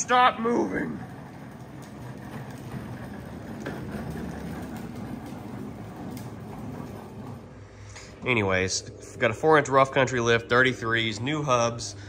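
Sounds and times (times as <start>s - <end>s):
plastic toy wheels rumbling: 0.0s - 7.7s.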